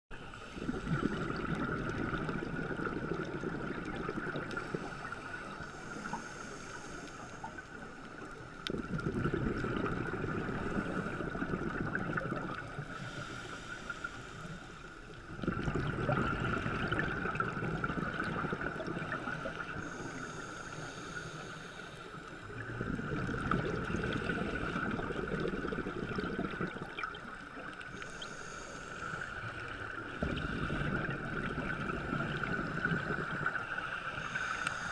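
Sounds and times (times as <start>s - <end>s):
underwater exhaled bubbles gurgling: 0.2s - 34.9s
regulator inhalation hiss: 4.6s - 8.2s, 12.8s - 15.2s, 19.2s - 22.6s, 27.9s - 30.9s, 32.4s - 34.9s.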